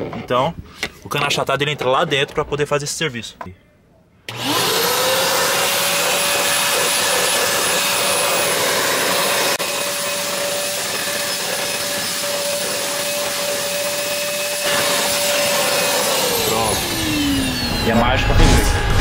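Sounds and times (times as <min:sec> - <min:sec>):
vacuum motor whining: 0:04.3 - 0:19.0.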